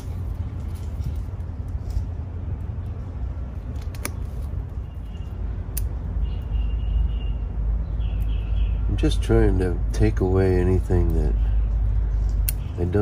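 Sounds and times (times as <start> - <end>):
steady low rumble: 0.0 - 13.0
cutters snipping branches: 12.1 - 13.0.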